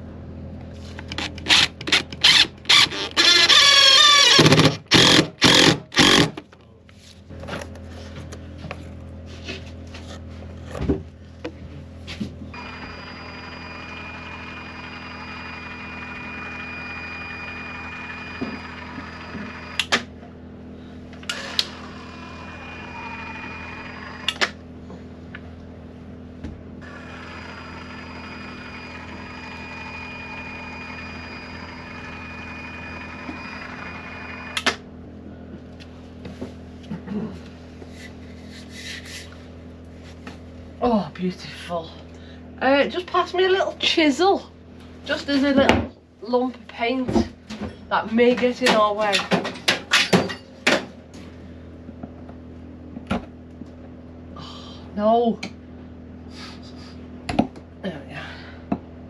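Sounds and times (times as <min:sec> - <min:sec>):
low generator hum: 0:00.0 - 0:59.0
caulking gun motor whining: 0:01.0 - 0:06.4, 0:12.6 - 0:20.1, 0:21.1 - 0:24.6, 0:26.8 - 0:34.8.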